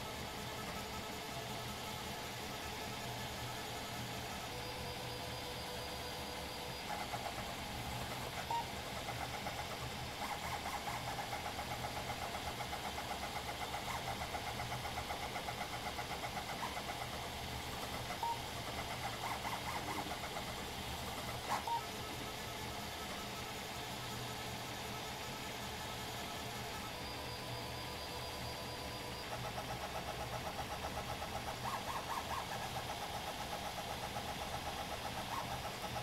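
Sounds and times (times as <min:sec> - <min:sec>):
fans humming: 0:00.0 - 0:36.0
stepper motors buzzing: 0:00.0 - 0:36.0.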